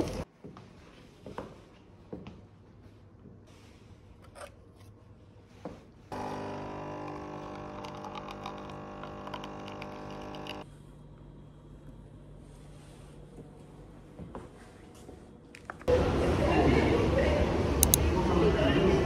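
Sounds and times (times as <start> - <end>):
coffee machine pump humming: 6.1 - 10.7
coffee crackling into paper cup: 6.2 - 10.6.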